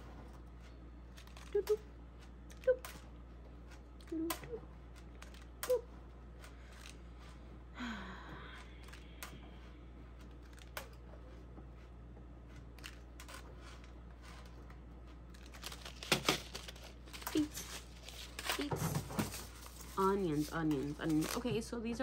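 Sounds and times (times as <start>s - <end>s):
person humming: 4.0s - 6.0s, 7.8s - 9.4s
paper rustle: 12.6s - 21.6s.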